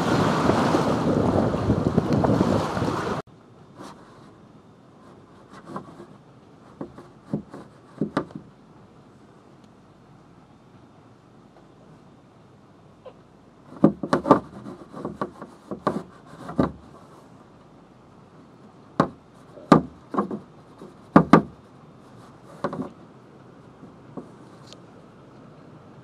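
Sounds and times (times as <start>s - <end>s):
pole knocking on wooden boards: 6.7s - 8.5s, 13.7s - 16.9s, 19.0s - 21.6s, 22.5s - 23.0s.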